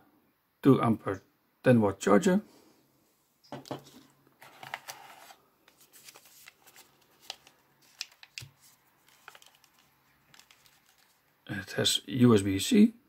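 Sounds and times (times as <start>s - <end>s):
soft rustles: 3.8s - 11.4s.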